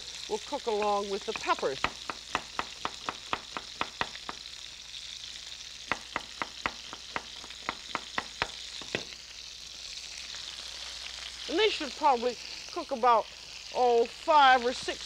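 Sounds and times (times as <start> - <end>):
steady hiss: 0.0 - 15.0
knife chopping on wooden board: 1.4 - 4.4, 5.9 - 9.1.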